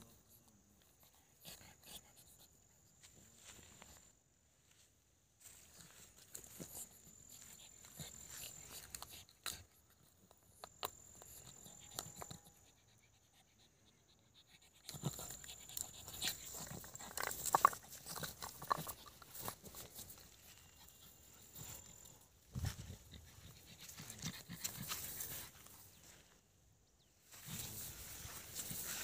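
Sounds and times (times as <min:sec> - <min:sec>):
rustling in dry grass: 0:03.0 - 0:09.0, 0:16.4 - 0:26.4, 0:27.2 - 0:29.0.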